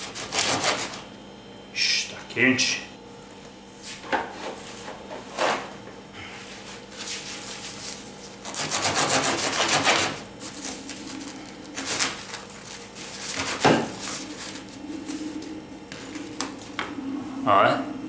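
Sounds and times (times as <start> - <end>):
knife sawing through bread crust: 0.0 - 1.0, 7.1 - 10.6, 11.8 - 12.3, 13.1 - 14.5.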